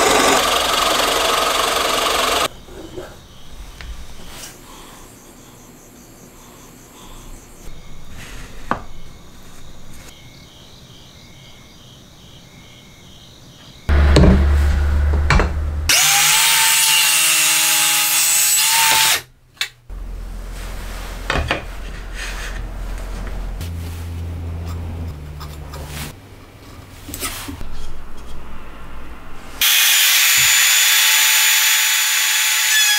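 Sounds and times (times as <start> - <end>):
power tool cutting wood: 0.0 - 2.5, 15.9 - 19.3, 29.6 - 32.9.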